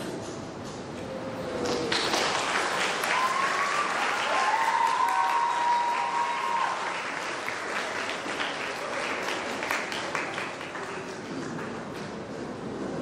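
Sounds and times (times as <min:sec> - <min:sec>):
audience applauding: 0:01.6 - 0:12.3
drawn-out cheer: 0:02.6 - 0:08.0.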